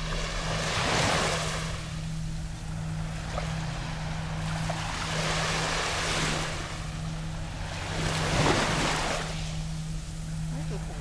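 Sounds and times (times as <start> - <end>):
small waves lapping: 0.0 - 11.0
steady low hum: 0.0 - 11.0.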